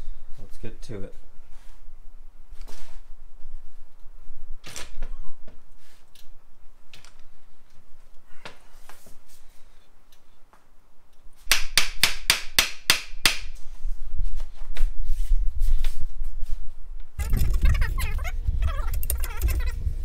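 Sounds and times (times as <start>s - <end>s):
low rumble: 17.2s - 20.0s.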